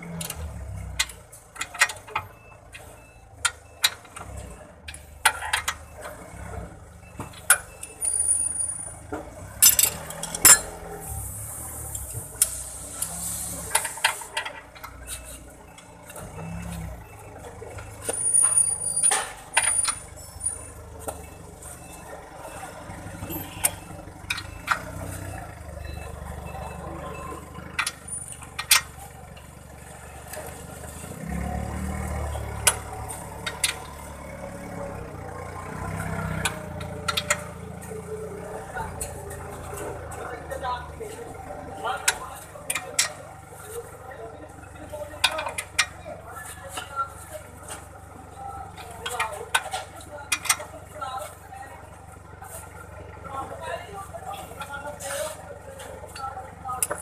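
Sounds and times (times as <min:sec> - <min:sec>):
wrench and metal parts clinking: 0:09.5 - 0:10.8.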